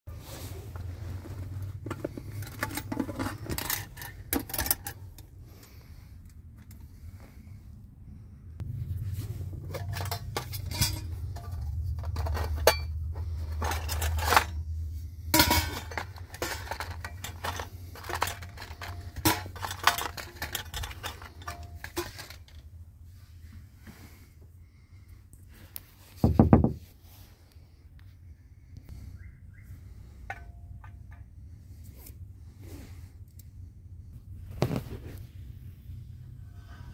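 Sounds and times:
low rumble: 6.9s - 17.0s
metal tin clinking: 9.6s - 22.6s.

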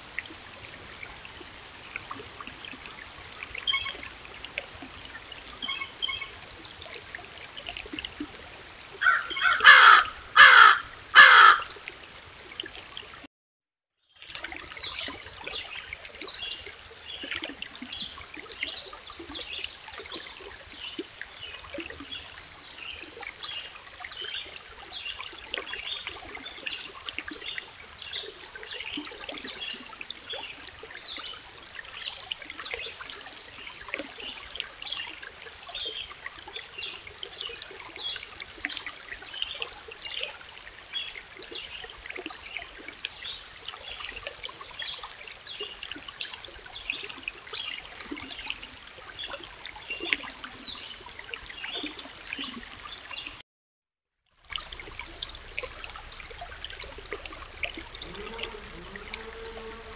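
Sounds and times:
stream babbling over rocks: 0.0s - 13.2s, 54.4s - 59.9s.

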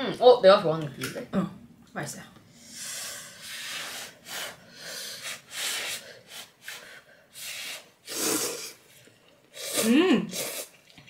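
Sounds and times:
person slurping soup: 7.7s - 11.0s.

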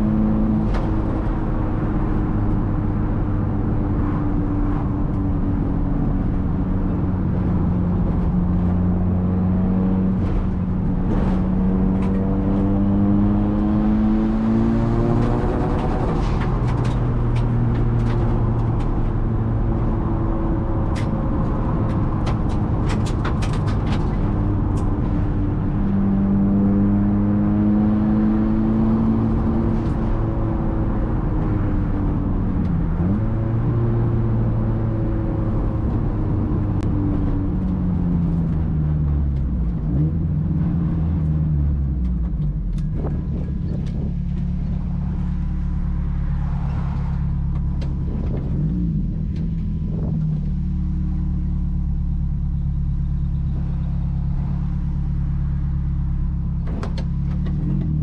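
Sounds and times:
car engine running: 29.0s - 58.0s.

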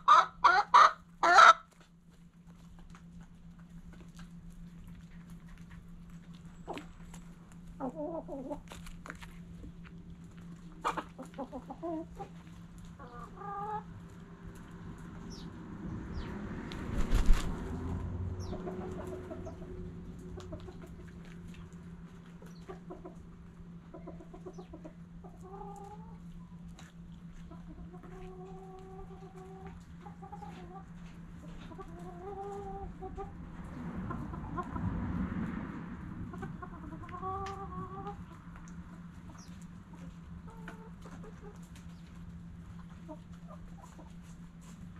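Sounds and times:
chickens clucking: 0.0s - 44.9s
steady low hum: 0.0s - 44.9s
beaks pecking grain: 0.1s - 15.5s.

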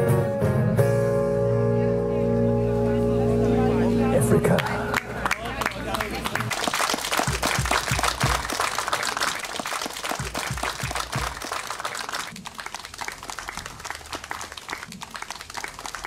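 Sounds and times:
audience clapping: 4.4s - 16.0s.

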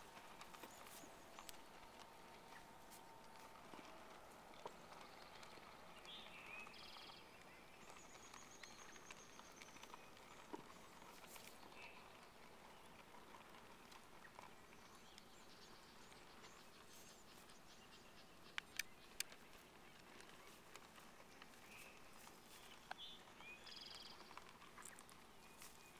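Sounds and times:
sharp clicks: 18.4s - 20.2s.

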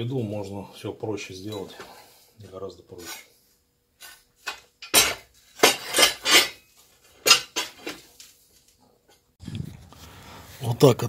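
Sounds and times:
metal objects clanking: 4.0s - 8.1s.

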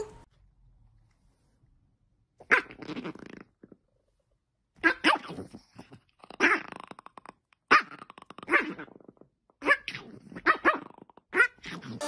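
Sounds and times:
dog play-growling and barking: 2.4s - 3.7s, 4.8s - 12.0s.

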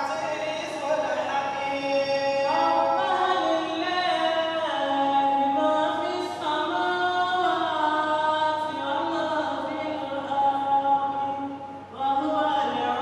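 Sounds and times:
men chanting unaccompanied: 0.0s - 6.8s.

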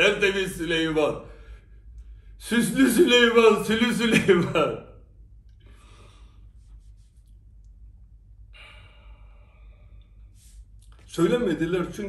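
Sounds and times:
man breathing quietly: 5.5s - 7.4s, 8.4s - 11.0s.

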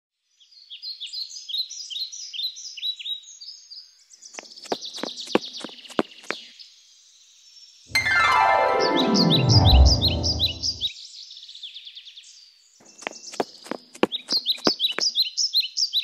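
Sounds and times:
loud sound gliding down in pitch: 7.9s - 10.9s.

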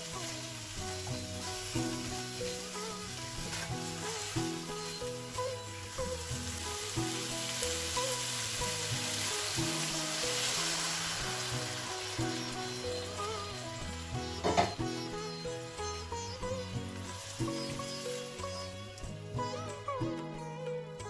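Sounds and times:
food sizzling in frying pan: 0.0s - 19.9s
background music: 0.0s - 21.0s.

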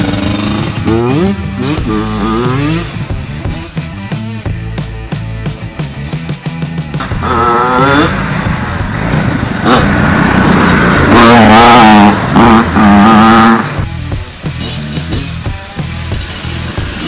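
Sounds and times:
go-kart engine revving: 0.0s - 3.8s, 7.0s - 13.9s
dirt bike engine revving: 0.0s - 4.3s, 7.0s - 13.9s.

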